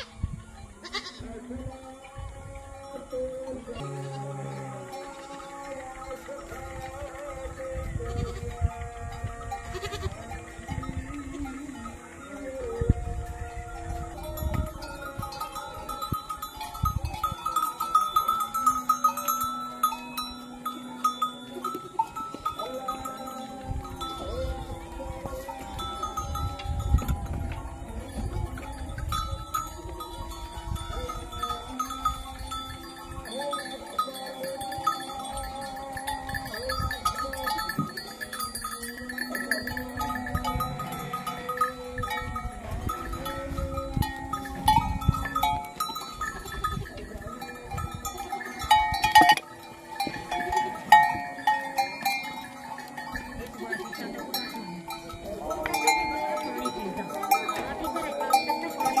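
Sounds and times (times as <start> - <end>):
goats bleating: 0.0 - 0.2, 0.8 - 1.5, 3.5 - 12.5, 17.3 - 46.2
animal bells clanking: 0.0 - 59.0.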